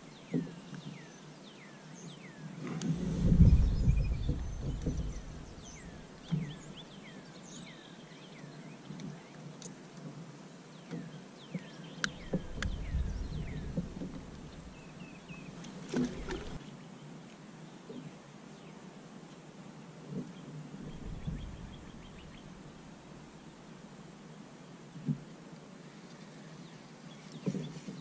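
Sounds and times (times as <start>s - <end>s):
small birds chirping: 0.0s - 9.8s, 10.7s - 17.0s, 20.1s - 23.6s.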